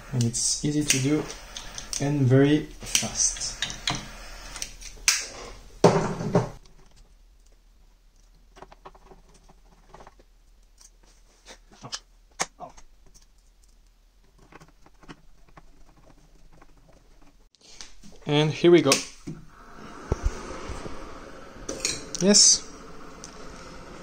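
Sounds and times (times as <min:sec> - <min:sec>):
lighter flame hissing: 0:00.0 - 0:05.8, 0:19.5 - 0:24.0.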